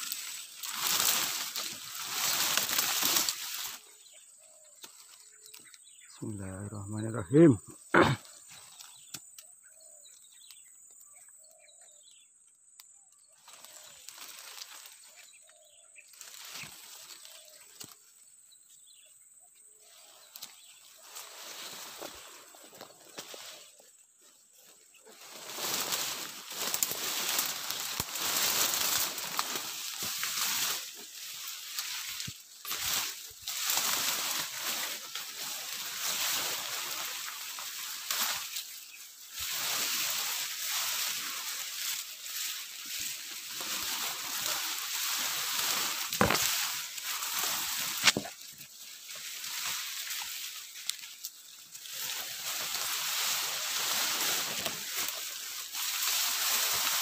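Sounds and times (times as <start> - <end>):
vegetation brushing against camera: 25.1 - 57.0.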